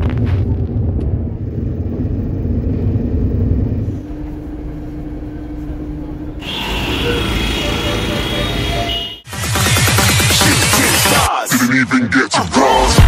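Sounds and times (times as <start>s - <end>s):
steady hum: 0.4s - 10.4s
bus rumbling: 0.8s - 9.2s.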